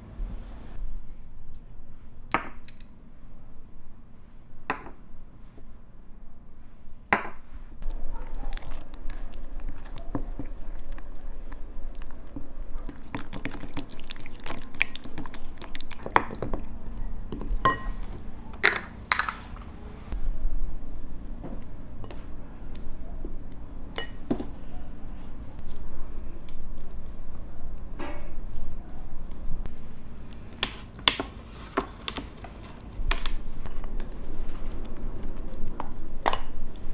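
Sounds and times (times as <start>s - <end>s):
glass clinking: 17.6s - 19.7s.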